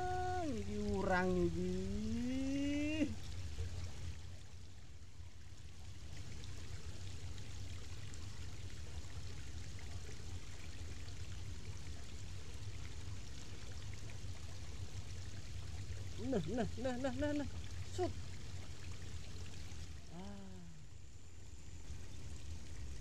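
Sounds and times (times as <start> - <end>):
low steady rumble: 0.0 - 23.0
creek water rushing: 6.0 - 23.0.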